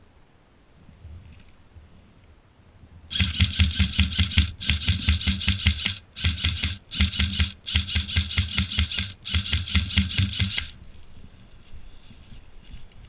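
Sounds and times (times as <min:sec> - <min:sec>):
airsoft rifle firing bursts: 0:03.1 - 0:10.8.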